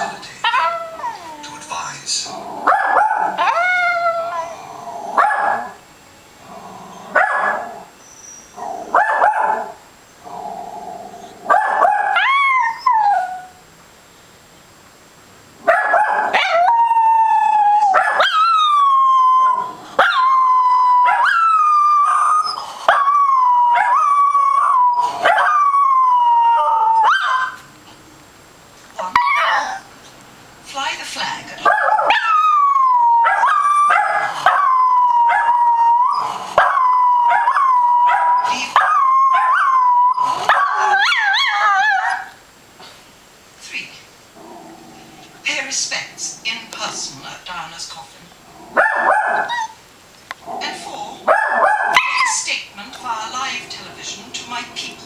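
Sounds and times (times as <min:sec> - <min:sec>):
dog barking and yelping: 0:00.4 - 0:01.5, 0:02.6 - 0:05.8, 0:07.1 - 0:09.8, 0:11.5 - 0:13.6, 0:15.6 - 0:27.7, 0:29.0 - 0:29.9, 0:31.6 - 0:42.4, 0:48.7 - 0:49.8, 0:51.2 - 0:52.5
dog howling: 0:00.4 - 0:01.6, 0:02.6 - 0:05.8, 0:11.5 - 0:13.6, 0:15.8 - 0:27.6, 0:29.0 - 0:29.9, 0:31.6 - 0:42.4, 0:51.3 - 0:52.4.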